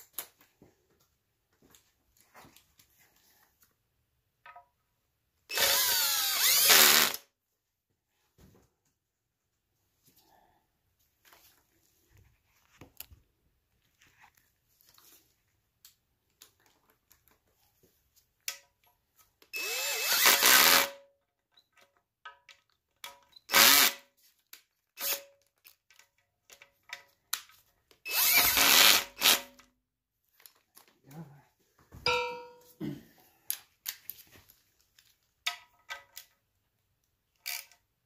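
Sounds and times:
cordless drill driving bolts: 5.5s - 7.2s, 19.6s - 20.9s, 23.5s - 24.0s, 28.1s - 29.4s.

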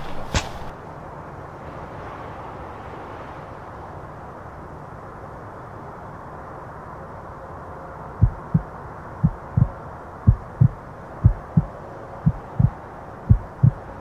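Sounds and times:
background hiss: 0.0s - 0.8s
heartbeat thumps: 8.2s - 13.9s.

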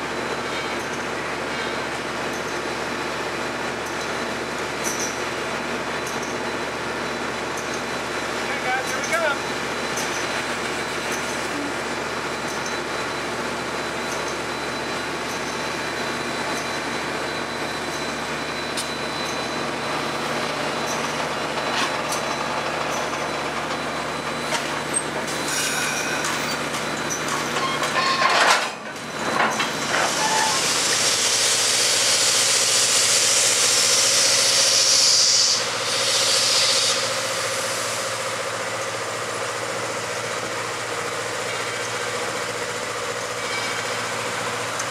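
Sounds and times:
steam train hissing: 24.8s - 26.7s, 29.7s - 44.8s.

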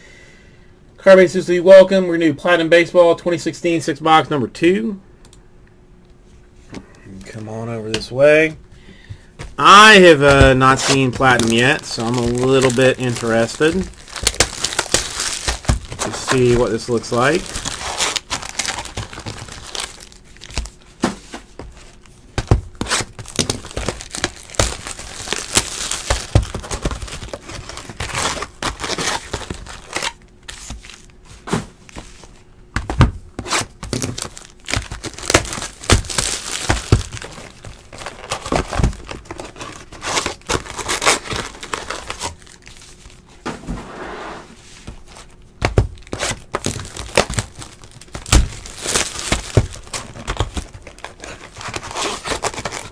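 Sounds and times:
plastic packs tearing open: 9.6s - 20.8s, 22.7s - 31.2s, 33.4s - 43.0s, 46.0s - 52.9s
wrappers crinkling: 9.6s - 20.9s, 21.7s - 31.2s, 33.5s - 43.3s, 45.0s - 52.9s.

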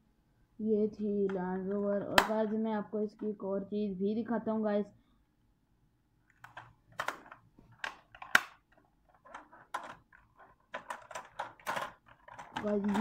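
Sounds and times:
plastic toy clicks and knocks: 1.2s - 2.6s, 6.3s - 13.0s.

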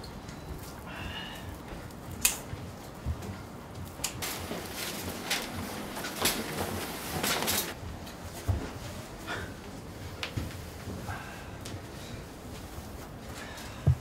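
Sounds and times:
rustling handling noise: 1.9s - 11.1s.

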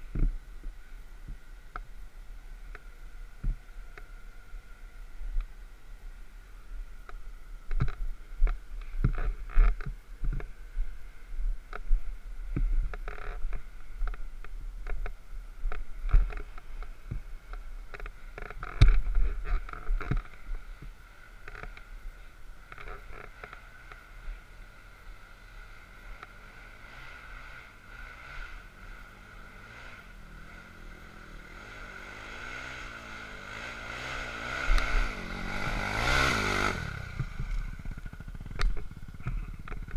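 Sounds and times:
quad bike engine revving: 22.7s - 39.9s.

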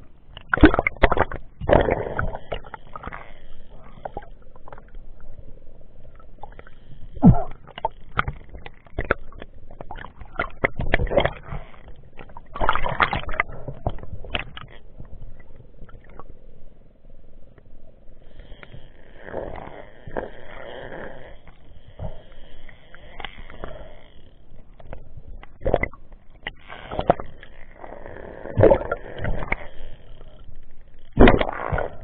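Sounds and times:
muffled underwater knocks and clicks: 0.3s - 3.2s, 6.1s - 16.3s, 21.5s - 27.6s, 31.0s - 32.0s.

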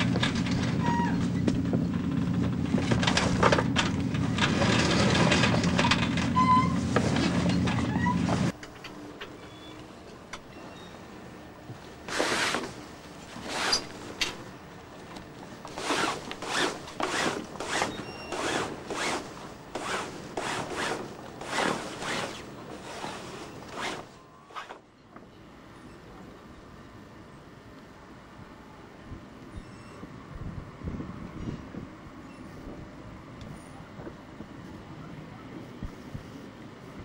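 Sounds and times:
zipper zipping strokes: 12.1s - 12.8s, 13.4s - 14.0s, 15.7s - 24.8s.

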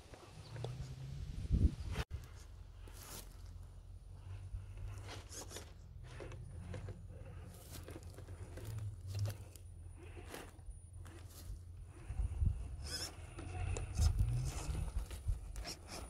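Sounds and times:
toy car tyres scraping on rock: 2.0s - 16.0s.

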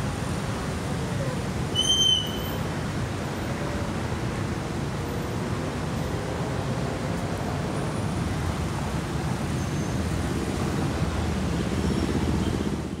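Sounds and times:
cars and motorcycles passing: 2.8s - 13.0s.

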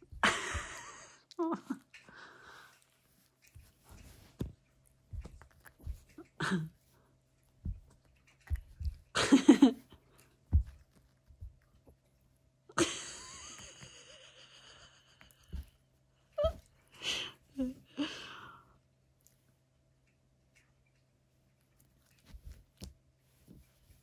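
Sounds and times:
dog thumping on a couch: 10.5s - 10.8s.

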